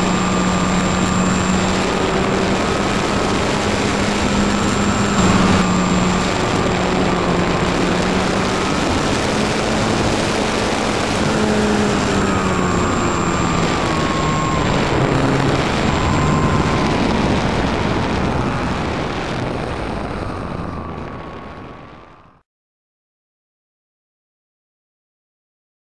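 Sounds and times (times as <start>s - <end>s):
rushing air: 0.0s - 21.9s
model plane motor whining: 0.0s - 22.0s.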